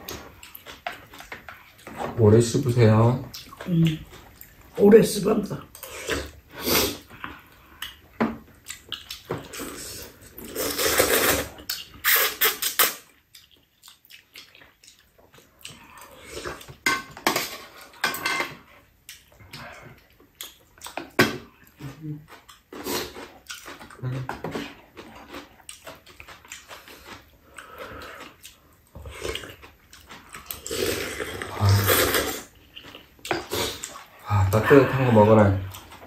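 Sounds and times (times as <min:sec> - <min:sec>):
people slurping noodles: 0:05.8 - 0:07.5, 0:09.4 - 0:12.9, 0:30.6 - 0:32.6.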